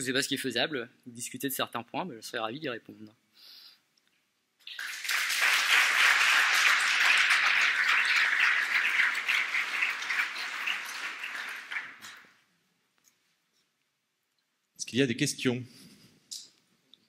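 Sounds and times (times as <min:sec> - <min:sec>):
audience applauding: 0:04.6 - 0:12.3.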